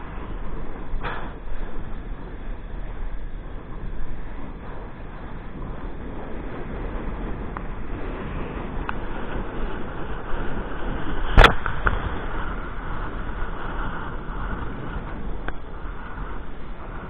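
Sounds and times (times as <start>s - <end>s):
kiteboard hissing across water: 0.0s - 17.0s
wind buffeting microphone: 0.0s - 17.0s
board slapping water: 9.7s - 14.1s.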